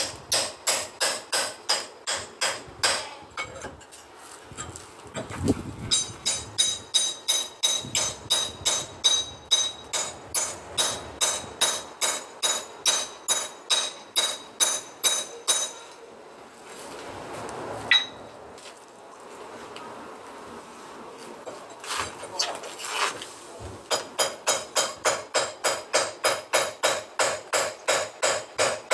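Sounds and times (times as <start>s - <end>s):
hammer striking chisel on concrete: 0.0s - 3.2s, 5.9s - 15.9s, 23.9s - 28.9s
sharp metallic clink: 5.9s - 16.0s, 17.9s - 18.3s.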